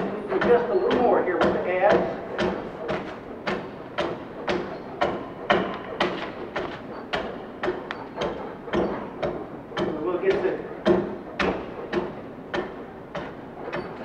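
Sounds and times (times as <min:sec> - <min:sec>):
adze chopping log: 0:09.8 - 0:13.8.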